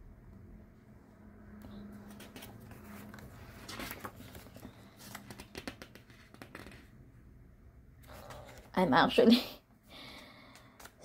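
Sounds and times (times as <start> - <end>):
book pages turning: 1.7 - 6.9.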